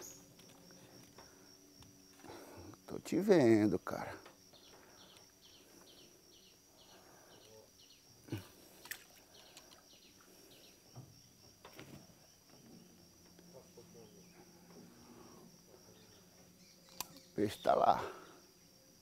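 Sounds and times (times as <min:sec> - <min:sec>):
bird chirping: 0:00.0 - 0:00.3, 0:04.5 - 0:08.4, 0:09.0 - 0:11.0, 0:13.6 - 0:18.8
insect drone: 0:00.0 - 0:19.0.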